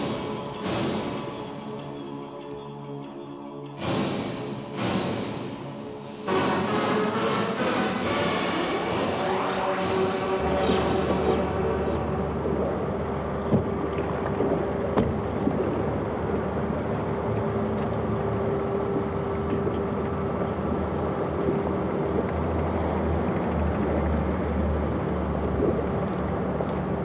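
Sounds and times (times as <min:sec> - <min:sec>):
deep rumble: 0:03.8 - 0:27.0
mechanical drone and hum: 0:06.3 - 0:27.0.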